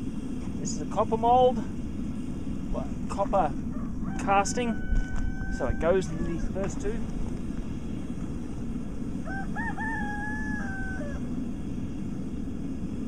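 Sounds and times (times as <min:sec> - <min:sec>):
low rumble: 0:00.0 - 0:13.0
rooster crowing: 0:03.6 - 0:07.1, 0:09.1 - 0:11.3.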